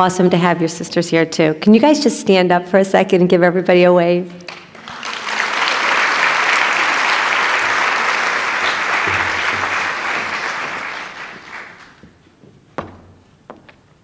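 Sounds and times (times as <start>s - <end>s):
large audience applauding: 4.5s - 12.1s.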